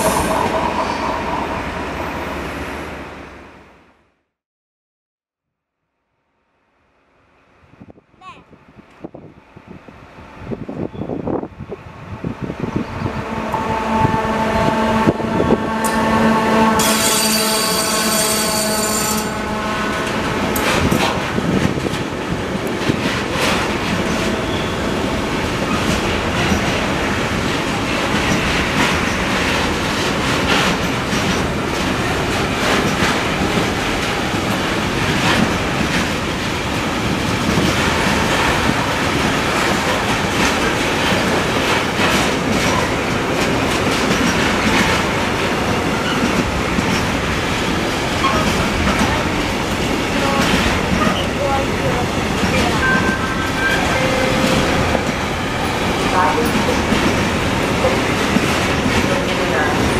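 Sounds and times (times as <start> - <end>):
freight train rumbling: 0.0 - 3.8, 7.5 - 59.9
wheels clacking over rail joints: 20.0 - 59.9.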